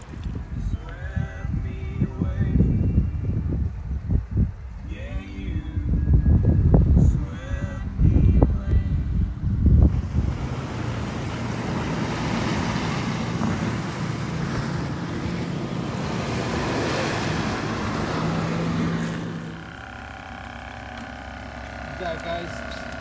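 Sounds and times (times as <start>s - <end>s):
wind: 0.0s - 23.0s
aerator motor hum bubbling: 9.0s - 23.0s
surf washing onto shore: 10.0s - 19.6s.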